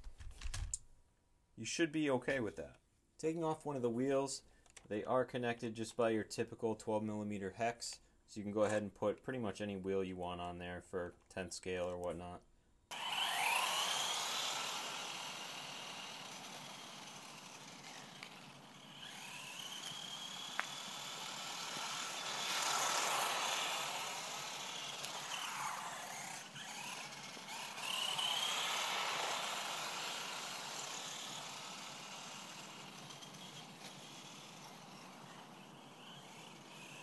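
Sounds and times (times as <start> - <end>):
electric motor whining: 12.9 - 37.0.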